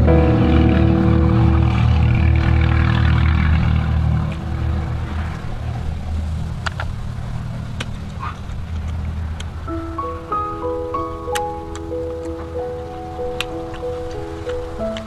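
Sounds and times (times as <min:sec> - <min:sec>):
sustained music tones: 0:00.0 - 0:06.5, 0:09.7 - 0:15.0
steady low rumble: 0:00.0 - 0:10.9.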